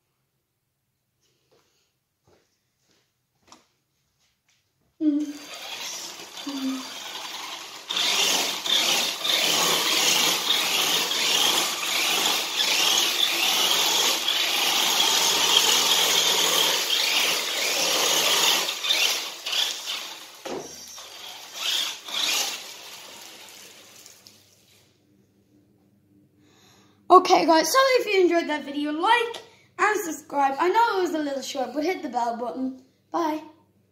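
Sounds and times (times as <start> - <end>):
toy truck motor whirring: 5.2 - 23.9
wheels sliding on tiles: 5.2 - 25.0.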